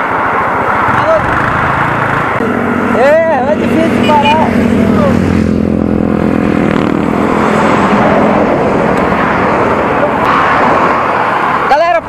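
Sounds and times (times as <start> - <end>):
tyres and air rushing: 0.0 - 11.8
vehicle engine hum: 0.0 - 12.0.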